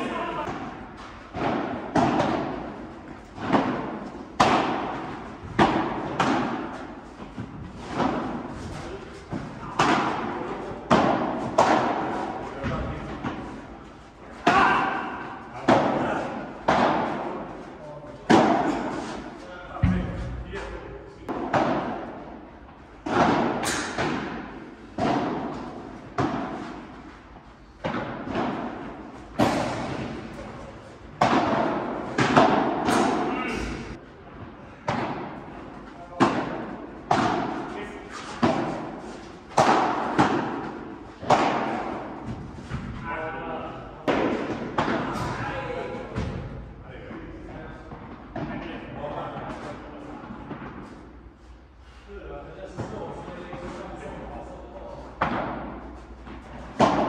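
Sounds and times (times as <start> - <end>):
padel ball knocks echoing: 0.4 - 8.4, 31.1 - 33.8
ball struck by rackets: 0.4 - 13.7, 14.4 - 17.6, 18.3 - 20.4, 21.3 - 22.4, 23.0 - 27.0, 27.8 - 30.4, 31.1 - 33.9, 34.8 - 35.5, 36.1 - 43.0, 44.0 - 45.4, 55.2 - 57.0.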